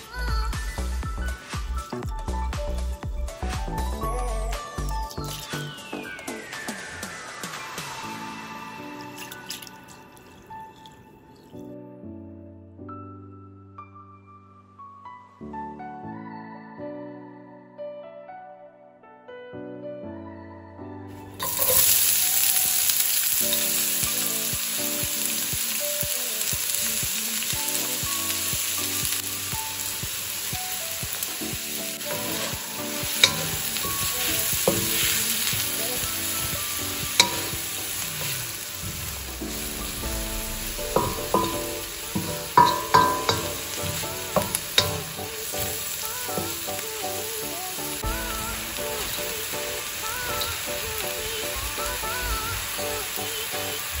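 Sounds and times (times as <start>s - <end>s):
onions sizzling in oil: 0.6s - 6.5s, 21.2s - 54.0s
wooden spatula knocking on pan: 40.9s - 45.3s.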